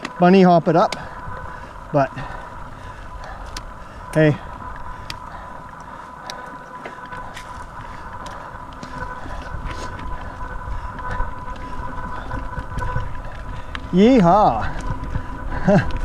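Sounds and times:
bike clicks and knocks: 0:00.0 - 0:01.2
low rumble: 0:01.0 - 0:16.0.

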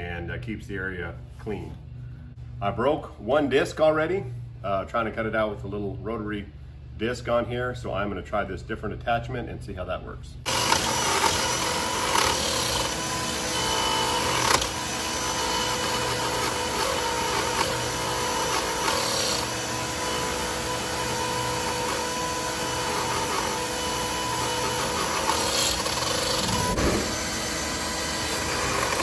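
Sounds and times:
rotary tool grinding fiberglass: 0:10.5 - 0:29.0
shop vacuum running: 0:10.5 - 0:29.0.

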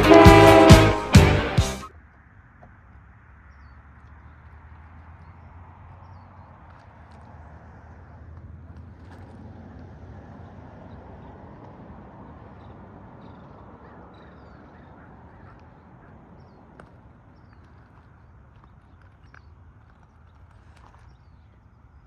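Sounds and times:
distant diesel freight train rumble: 0:00.0 - 0:01.4
small birds chirping: 0:03.4 - 0:07.3, 0:10.4 - 0:22.0.

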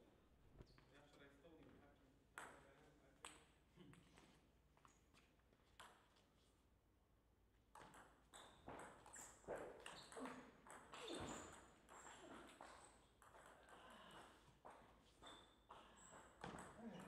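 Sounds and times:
table tennis ball hits and bounces: 0:05.7 - 0:06.2, 0:07.7 - 0:17.0.

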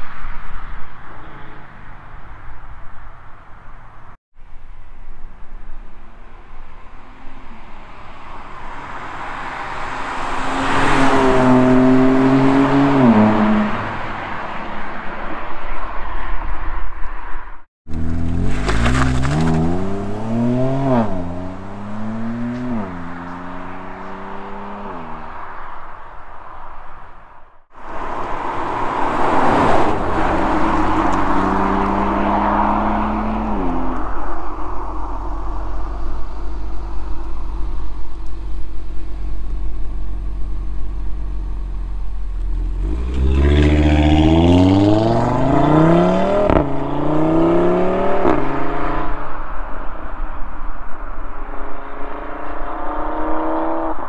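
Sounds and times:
sports car passing at speed: 0:07.4 - 0:38.6, 0:42.4 - 0:54.0.

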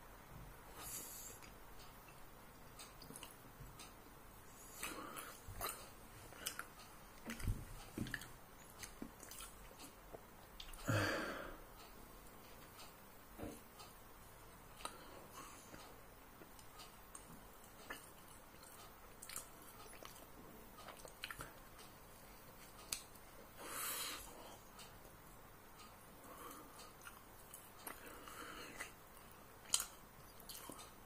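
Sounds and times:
person chewing: 0:02.8 - 0:03.4, 0:04.7 - 0:10.9, 0:16.4 - 0:21.7, 0:26.4 - 0:31.0.

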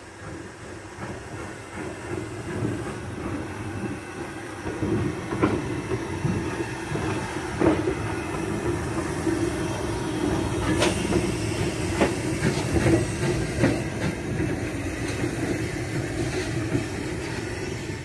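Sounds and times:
steam locomotive rumble and drone: 0:00.0 - 0:18.0.

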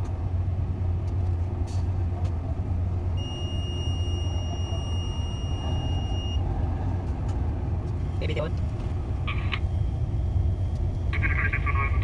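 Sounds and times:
boat engines rumbling: 0:00.0 - 0:12.0
high-pitched electronic beep: 0:03.2 - 0:06.4.

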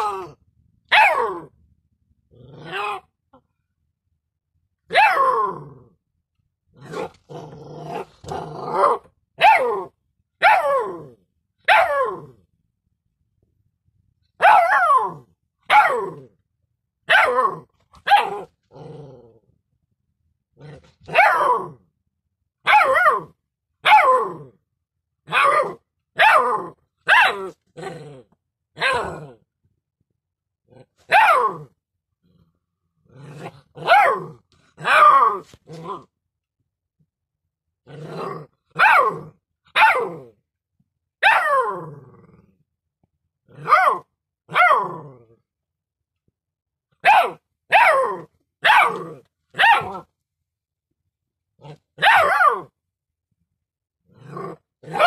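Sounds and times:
puppy barking high-pitched: 0:00.9 - 0:01.5, 0:04.9 - 0:05.5, 0:08.8 - 0:10.9, 0:11.6 - 0:12.2, 0:14.4 - 0:16.2, 0:17.0 - 0:18.5, 0:21.0 - 0:21.8, 0:22.6 - 0:24.3, 0:25.2 - 0:27.6, 0:31.0 - 0:31.7, 0:33.8 - 0:35.5, 0:38.7 - 0:40.2, 0:41.2 - 0:41.7, 0:43.6 - 0:44.9, 0:47.0 - 0:50.1, 0:52.0 - 0:52.8.

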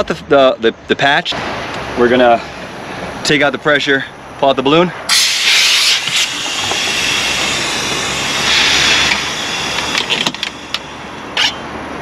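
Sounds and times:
compressed air hissing: 0:05.1 - 0:12.0.

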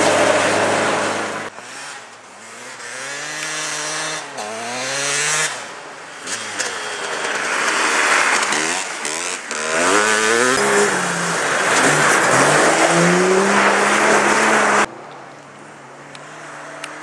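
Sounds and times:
dirt bike engine revving: 0:00.0 - 0:14.9.

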